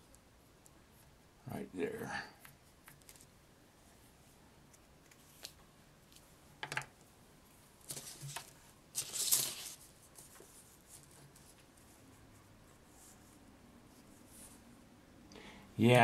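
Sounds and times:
paper and wire rustling: 7.8 - 12.0.

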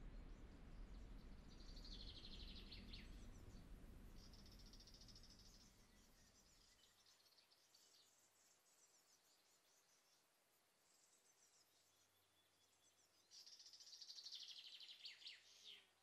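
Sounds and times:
low rumble: 0.0 - 4.8.

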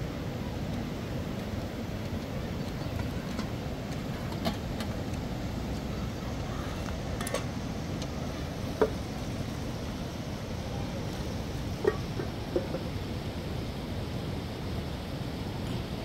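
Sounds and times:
metal pots clinking: 11.8 - 13.0.

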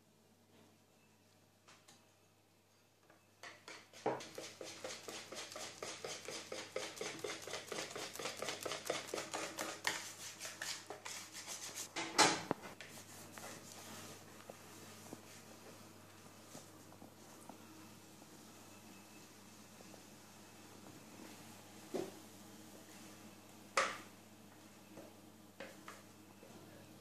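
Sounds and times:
whisk knocking bowl: 3.6 - 11.2
whisk scraping plastic bowl: 3.9 - 11.9.

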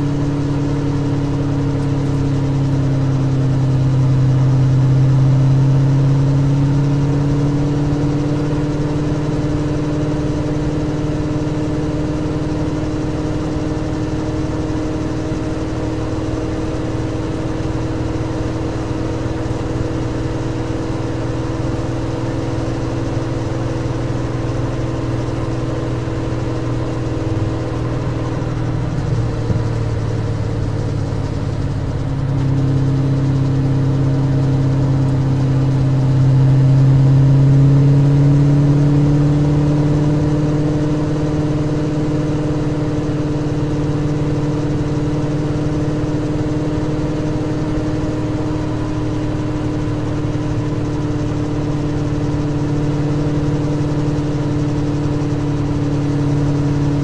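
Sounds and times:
race car engine at speed: 0.0 - 57.0.

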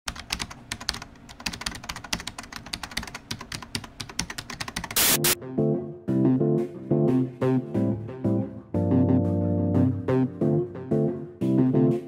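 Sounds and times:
keyboard typing: 0.1 - 5.4
loud burst of noise: 5.0 - 5.4.

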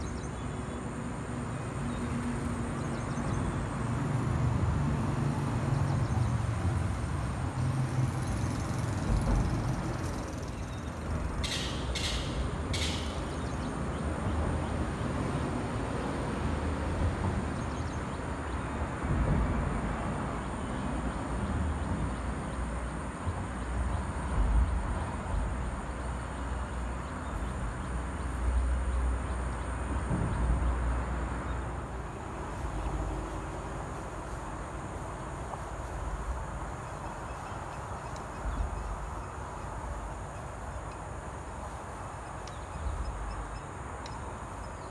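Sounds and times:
background hiss: 17.5 - 44.9.

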